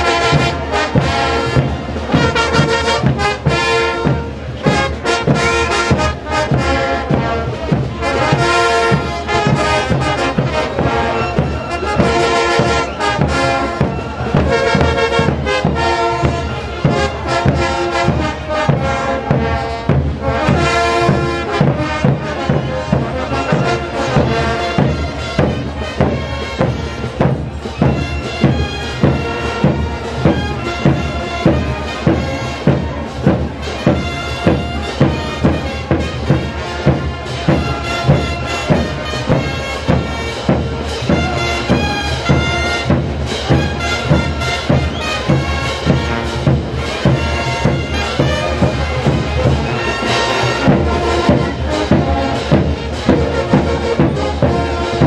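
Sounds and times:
steady drum beat: 0:00.0 - 0:55.0
wind instruments playing melody: 0:00.0 - 0:55.0.

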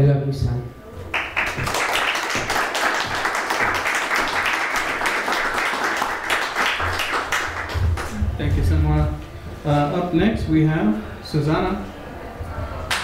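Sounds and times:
audience applauding: 0:01.1 - 0:08.2.

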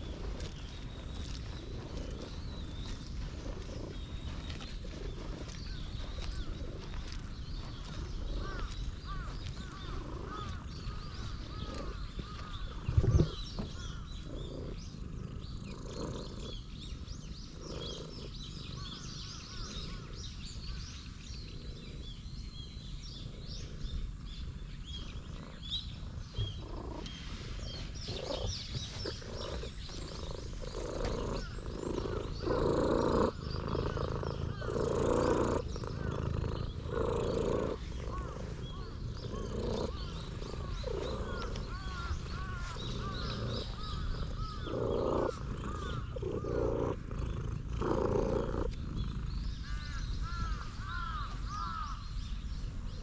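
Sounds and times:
cat purring loudly: 0:00.0 - 0:51.9
birds chirping: 0:00.0 - 0:53.0.

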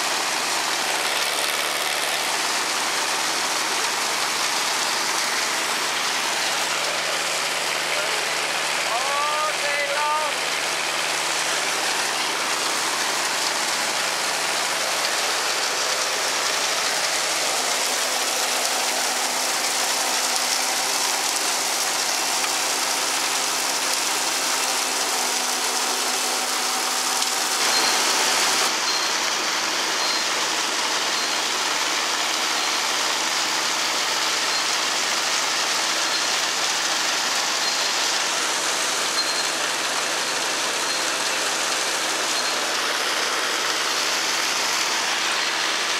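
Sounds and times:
wagon conveyor chains and beaters: 0:00.0 - 0:26.8, 0:27.6 - 0:45.9
rushing hiss of silage pouring: 0:00.0 - 0:45.9.

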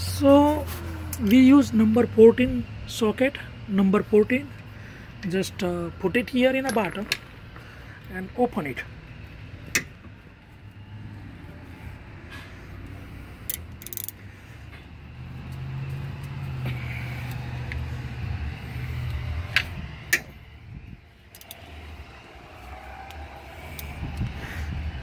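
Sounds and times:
ratchet clicking: 0:13.4 - 0:14.3, 0:21.3 - 0:21.9
low rumble: 0:16.7 - 0:25.0.

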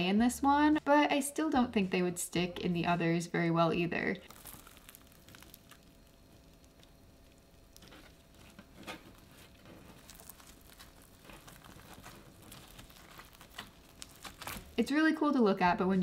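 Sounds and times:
slime crackling and popping: 0:04.2 - 0:14.8.

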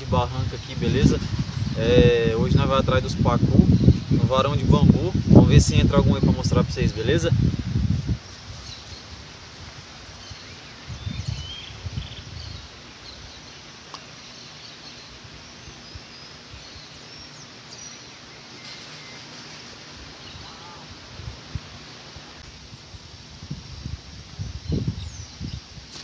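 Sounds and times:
outdoor background hiss: 0:00.0 - 0:26.0
faint bird chirps: 0:10.2 - 0:20.9.

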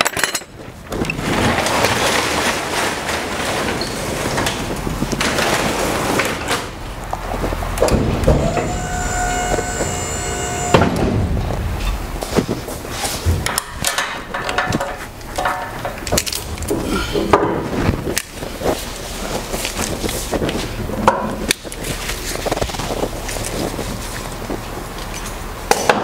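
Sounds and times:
hydraulic pump motor whine: 0:06.8 - 0:12.9
liftgate clunk: 0:07.8 - 0:12.1
metal knocks and clatter: 0:10.7 - 0:18.3.

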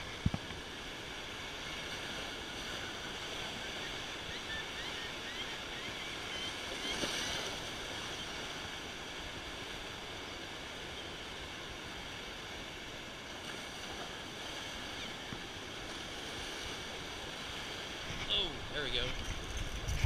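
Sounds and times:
wind rumble on microphone: 0:00.0 - 0:02.4, 0:15.2 - 0:20.0.

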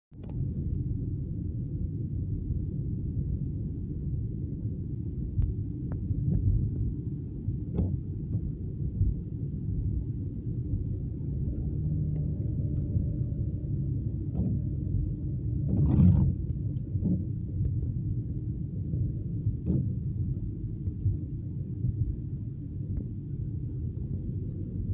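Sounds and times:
car driving on wet road: 0:07.7 - 0:22.2.

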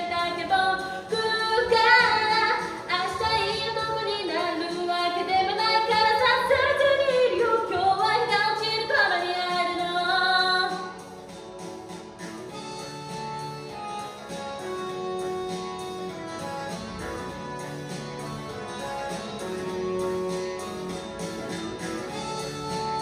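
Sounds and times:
pop song with woman singing: 0:00.0 - 0:11.0.

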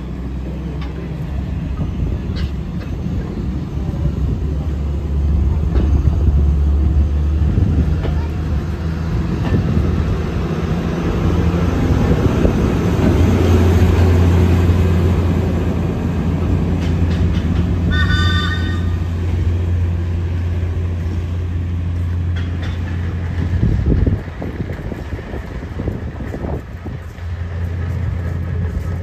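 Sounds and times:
electric railcar drone: 0:00.0 - 0:29.0
train horn toot: 0:17.9 - 0:19.1.

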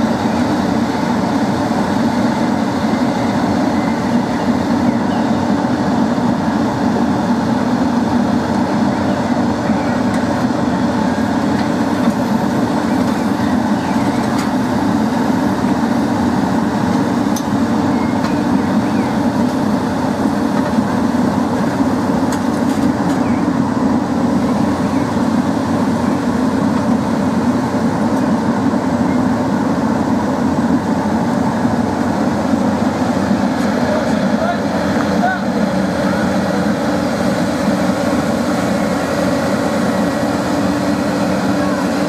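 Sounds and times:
heavy engine running: 0:00.0 - 0:42.0.

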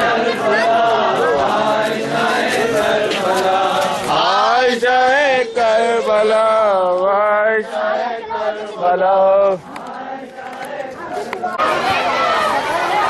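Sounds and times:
men chanting a lament: 0:00.0 - 0:13.0
man singing wavering melody: 0:04.2 - 0:07.7.

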